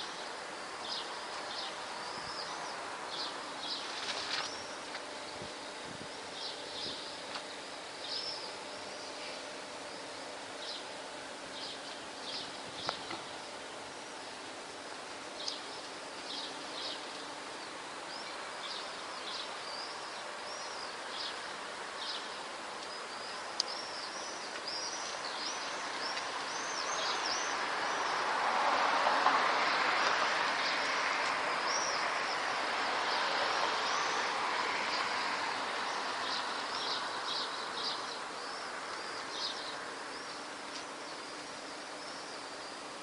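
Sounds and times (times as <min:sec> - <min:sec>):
city background hum: 0:00.0 - 0:43.0
swallows chirping: 0:05.7 - 0:13.2, 0:15.4 - 0:28.2, 0:31.6 - 0:32.4, 0:33.0 - 0:42.9.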